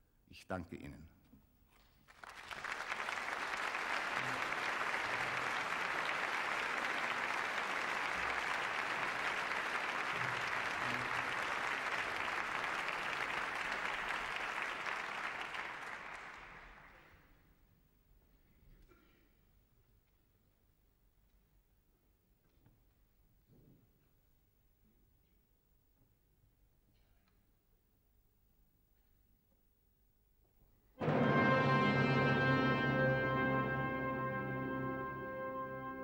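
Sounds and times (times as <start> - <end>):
audience applauding: 2.0 - 17.3.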